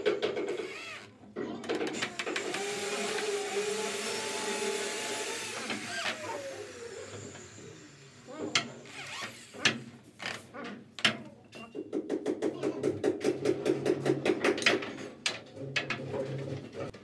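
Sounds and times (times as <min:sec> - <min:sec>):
electric drill boring into wood: 0:00.4 - 0:01.1, 0:01.8 - 0:09.8.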